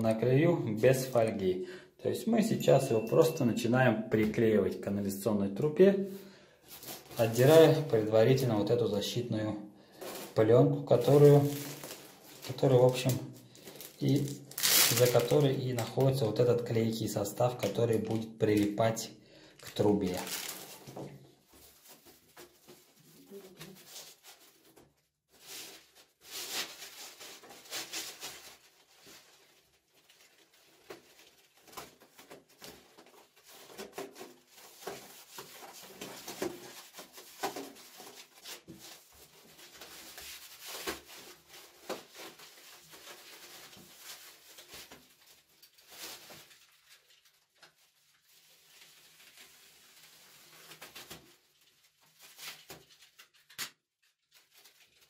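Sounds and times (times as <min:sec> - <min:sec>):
foam sheet rustling and crinkling: 0:06.7 - 0:08.5, 0:09.9 - 0:16.4, 0:19.6 - 0:55.0.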